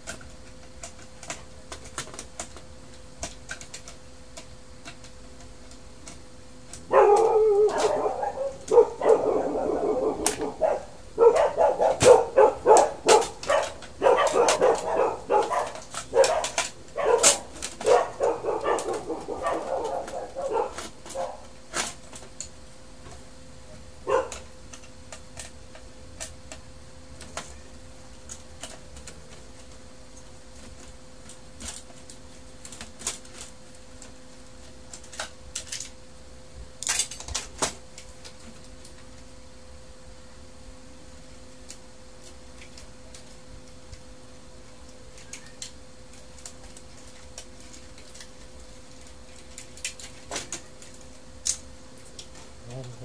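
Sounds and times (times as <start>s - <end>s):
faint steady hum: 0.0s - 53.0s
dog barking: 6.8s - 21.5s, 24.0s - 24.4s.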